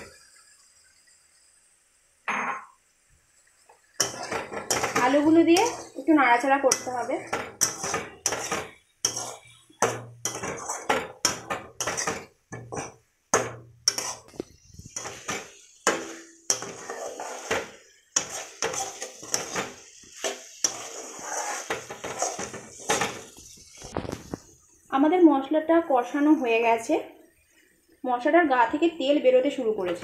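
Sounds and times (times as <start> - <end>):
spatula scraping a metal wok: 4.0 - 24.0.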